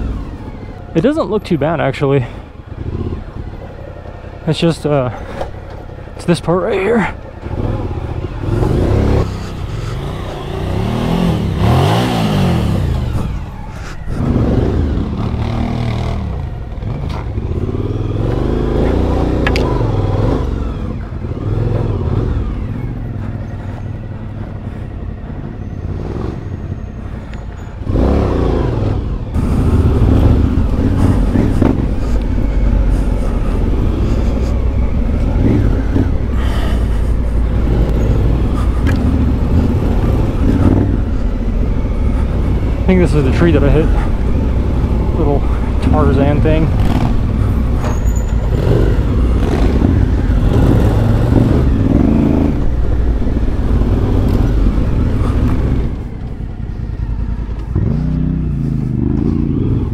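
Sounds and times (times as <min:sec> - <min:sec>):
motorcycle engine revving: 0:00.0 - 0:59.9.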